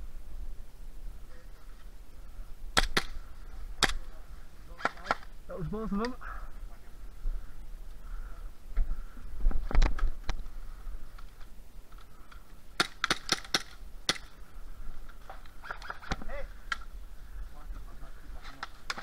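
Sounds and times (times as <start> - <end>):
airsoft gun shots snapping: 2.8 - 3.2, 12.8 - 14.3.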